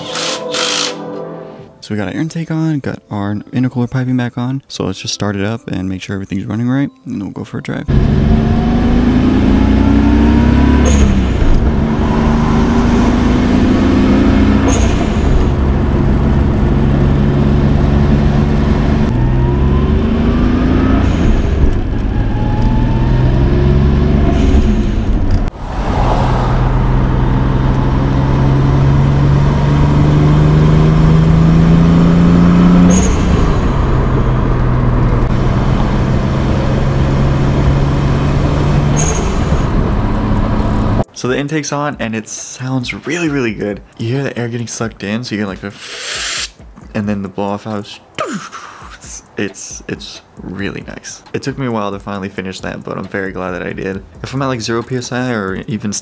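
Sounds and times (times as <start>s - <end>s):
car engine accelerating through gears: 7.9s - 41.1s
intake sucking air: 20.4s - 22.6s, 24.0s - 28.5s, 45.7s - 46.7s
blow-off valve hiss: 45.7s - 46.6s.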